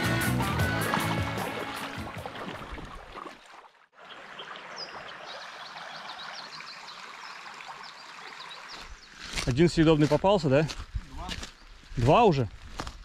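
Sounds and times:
water rushing over stones: 0:00.8 - 0:09.6.

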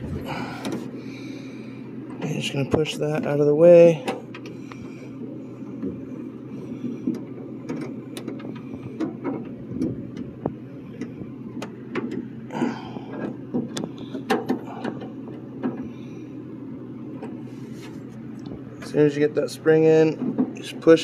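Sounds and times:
steady low hum: 0:00.0 - 0:21.0
car door parts clicking and rattling: 0:07.0 - 0:12.3, 0:13.1 - 0:15.9.

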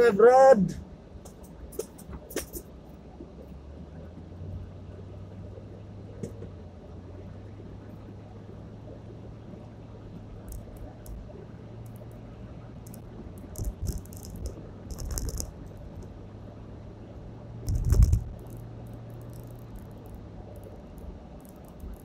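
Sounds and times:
steady low hum: 0:00.0 - 0:22.0
rattling and knocking in car cabin: 0:01.2 - 0:03.4, 0:13.4 - 0:16.0, 0:17.6 - 0:18.6.

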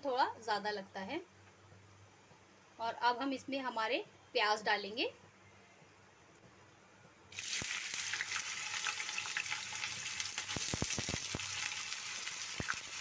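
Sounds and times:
onions sizzling in hot oil: 0:07.3 - 0:13.0.

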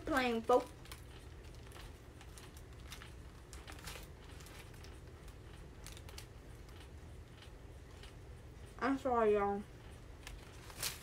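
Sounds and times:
paper wrapper crinkling: 0:00.0 - 0:06.9, 0:10.2 - 0:11.0
faint chewing and biting: 0:00.0 - 0:08.8, 0:09.6 - 0:11.0.

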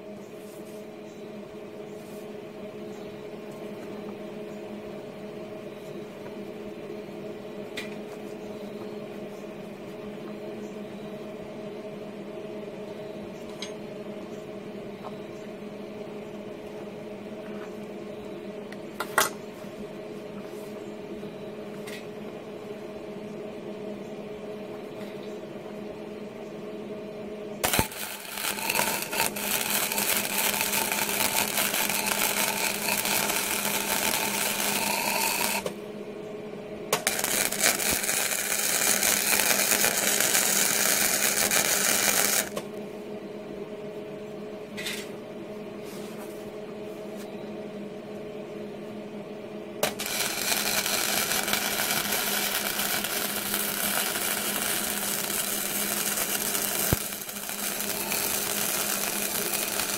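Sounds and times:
steady low hum: 0:00.0 - 0:59.9
welding arc crackling: 0:27.6 - 0:35.8, 0:36.9 - 0:42.6, 0:49.8 - 0:59.9.

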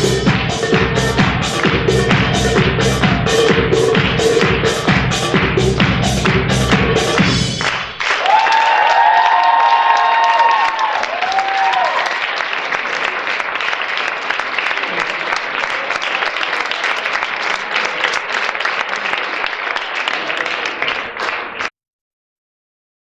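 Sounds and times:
audience applauding: 0:06.2 - 0:21.7.

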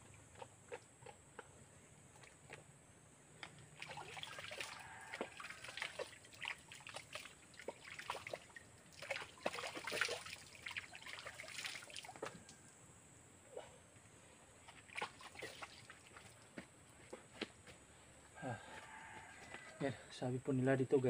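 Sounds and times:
water splashing and trickling: 0:03.4 - 0:12.7, 0:14.6 - 0:17.3.

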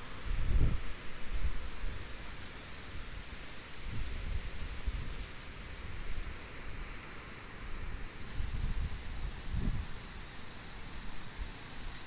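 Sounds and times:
insects chirping: 0:00.0 - 0:12.0
gusty wind buffeting microphone: 0:00.2 - 0:02.2, 0:03.8 - 0:06.9, 0:07.8 - 0:10.1.

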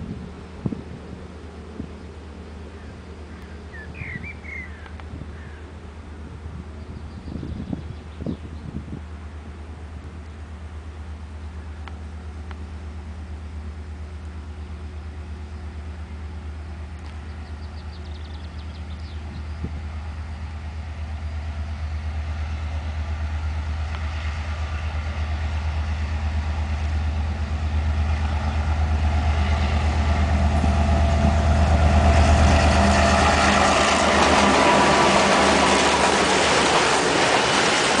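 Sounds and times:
diesel locomotive engine throb: 0:00.0 - 0:38.0
wheel-on-rail noise: 0:09.2 - 0:38.0.

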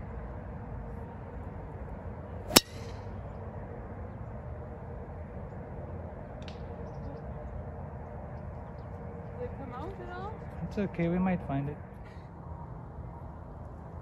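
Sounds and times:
golf club striking ball: 0:02.5 - 0:03.0.

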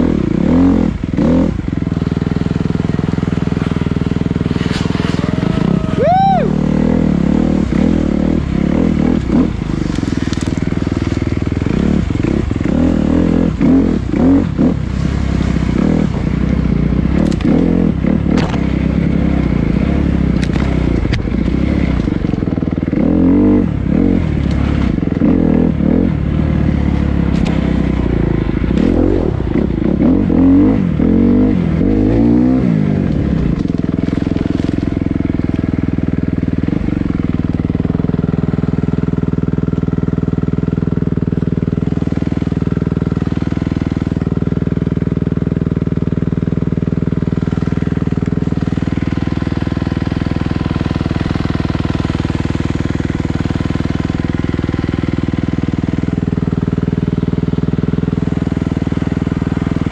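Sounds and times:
dirt bike engine revving: 0:00.0 - 0:59.9
sharp clicks and knocks: 0:18.3 - 0:18.7.

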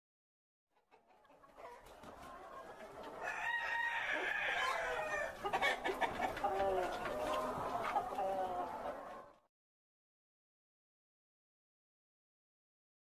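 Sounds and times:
chickens clucking and calling: 0:00.7 - 0:09.5.

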